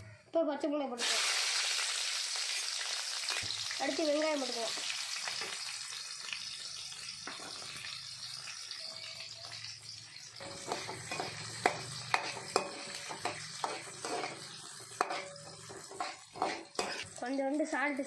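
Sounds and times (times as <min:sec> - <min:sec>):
shallots sizzling in hot oil: 0:01.0 - 0:18.0
metal ladle scraping a pan: 0:10.3 - 0:17.2.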